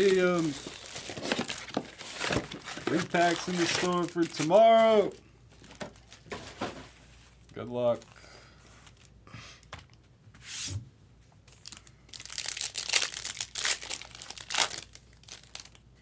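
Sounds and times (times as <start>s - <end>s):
foil wrapper crinkling and tearing: 0.0s - 6.3s, 11.5s - 15.8s.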